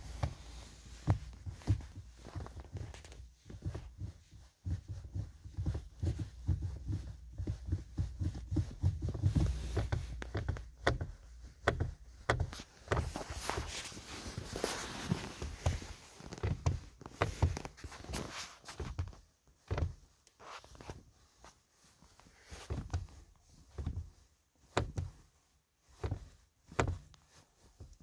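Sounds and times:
boots thumping on car pedals: 0:00.0 - 0:20.1, 0:22.6 - 0:25.2, 0:26.0 - 0:27.1
fabric rustling: 0:00.0 - 0:26.4
pedal clicks and knocks: 0:01.0 - 0:13.2.

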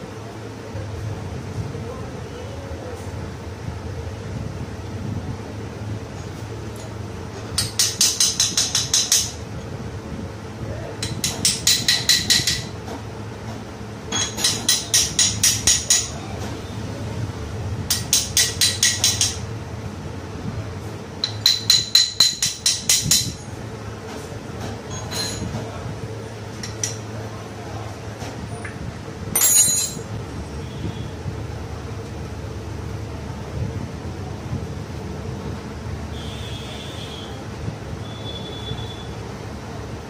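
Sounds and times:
small hammer striking metal: 0:07.6 - 0:09.4, 0:11.0 - 0:12.7, 0:14.1 - 0:16.1, 0:17.9 - 0:19.4, 0:21.2 - 0:23.4, 0:29.4 - 0:30.1.

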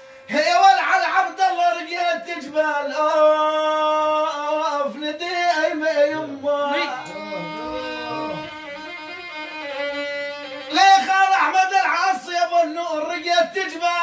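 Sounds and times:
violin playing slow melody: 0:06.7 - 0:11.4.

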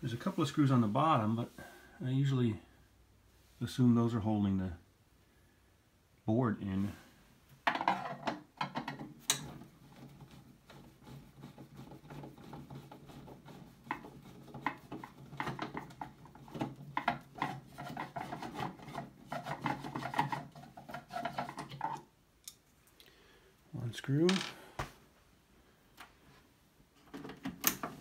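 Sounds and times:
hands rubbing on plastic case: 0:09.7 - 0:21.9.

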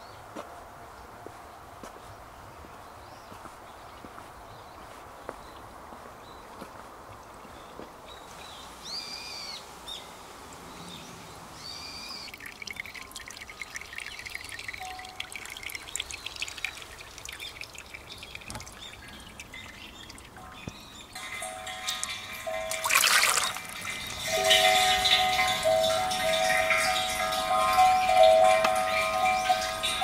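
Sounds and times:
outdoor hush: 0:02.8 - 0:30.0
water trickling into stone basin: 0:10.9 - 0:30.0
faint bell-like ringing tones: 0:12.4 - 0:16.2, 0:19.6 - 0:30.0.

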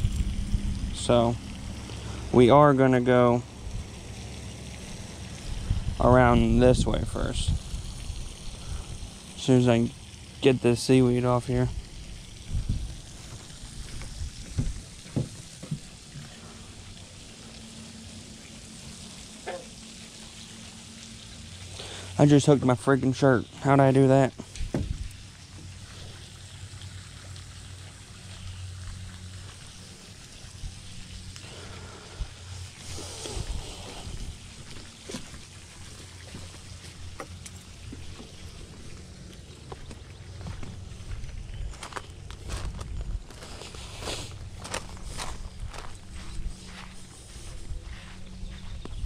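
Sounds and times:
low steady rumble: 0:00.0 - 0:49.0
outdoor hiss: 0:00.0 - 0:49.0
footsteps on wooden boards: 0:13.3 - 0:16.3
rustle: 0:28.3 - 0:49.0.

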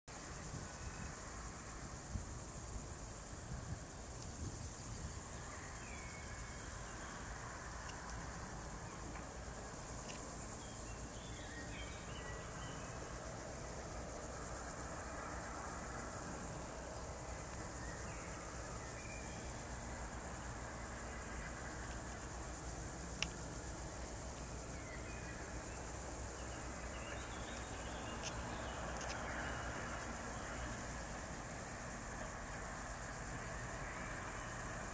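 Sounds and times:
insect chorus trilling: 0:00.1 - 0:34.9
distant diesel locomotives rumbling: 0:12.3 - 0:34.9.

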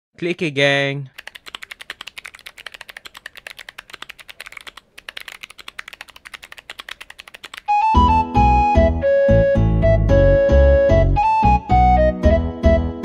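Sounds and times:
typing on mechanical keyboard: 0:01.1 - 0:07.9.

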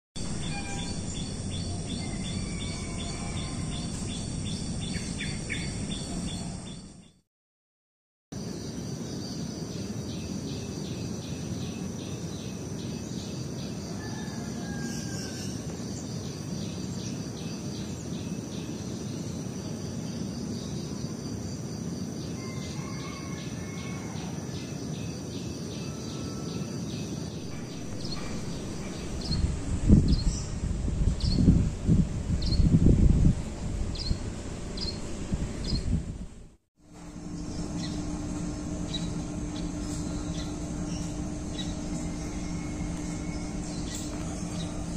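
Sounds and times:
insects chirping: 0:00.2 - 0:07.1, 0:08.4 - 0:35.9, 0:36.8 - 0:44.9
low background rumble: 0:27.4 - 0:44.9.

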